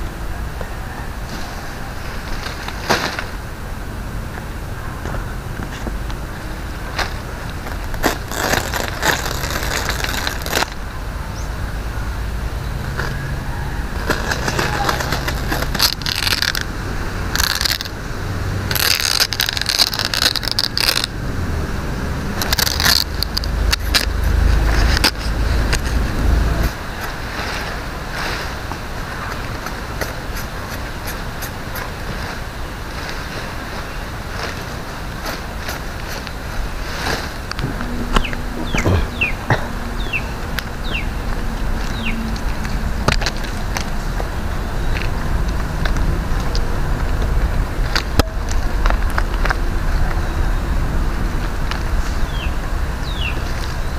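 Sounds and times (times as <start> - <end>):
palm leaves rustling and scraping: 0.6 - 11.6, 12.6 - 53.9
low rumble: 36.5 - 53.0.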